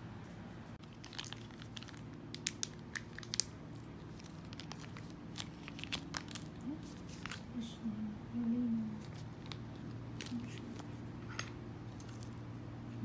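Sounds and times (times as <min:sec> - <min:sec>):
low steady hum: 0:00.0 - 0:13.0
plastic sachet crinkling: 0:00.8 - 0:07.6, 0:09.0 - 0:11.1.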